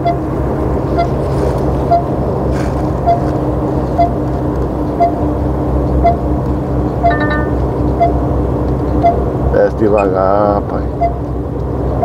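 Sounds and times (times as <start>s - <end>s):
truck engine running: 0.0s - 12.0s
short electronic beeps: 7.0s - 8.2s, 9.0s - 9.2s, 10.0s - 10.2s
high chime: 7.1s - 7.6s.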